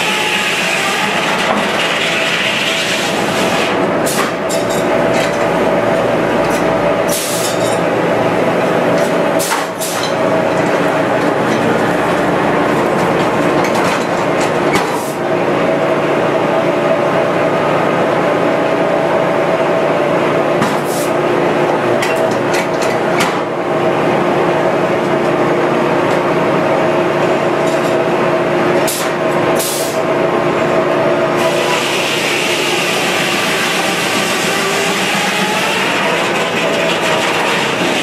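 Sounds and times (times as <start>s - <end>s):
sawmill machinery humming: 0.0s - 38.0s
sharp knocks and clanks: 22.0s - 23.5s.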